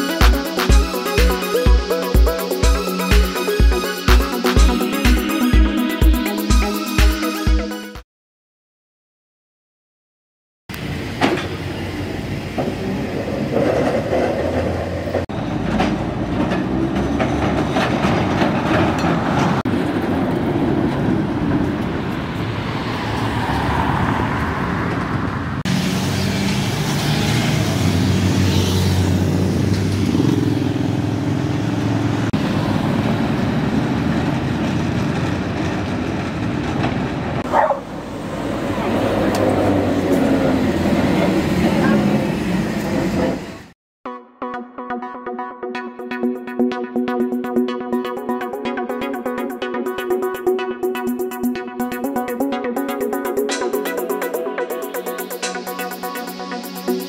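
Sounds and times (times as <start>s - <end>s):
tram wheels rumbling on rails: 10.7s - 43.7s.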